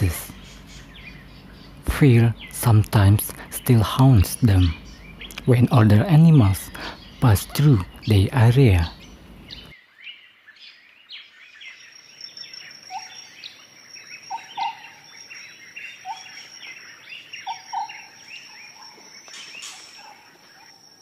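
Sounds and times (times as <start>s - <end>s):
short low bird calls: 0.0s - 9.8s, 12.8s - 13.6s, 14.2s - 21.0s
steady high whine: 0.0s - 9.8s
small birds chirping: 0.0s - 21.0s.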